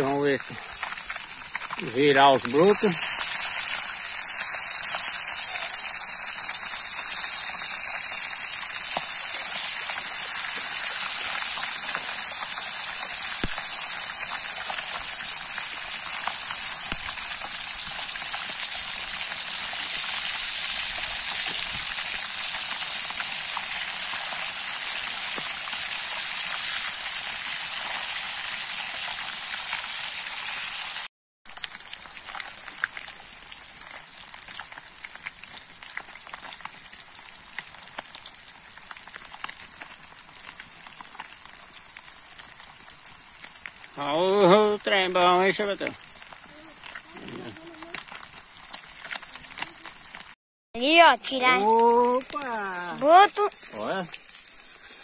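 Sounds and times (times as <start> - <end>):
fish deep-frying sizzle: 0.0 - 55.0.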